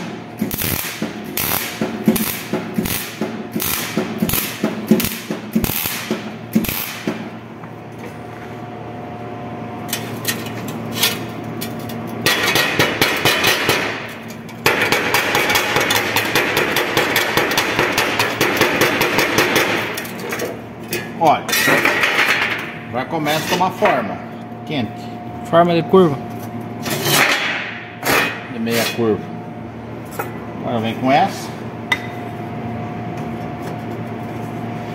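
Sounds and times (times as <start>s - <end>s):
welding arc crackling: 0.0s - 7.1s.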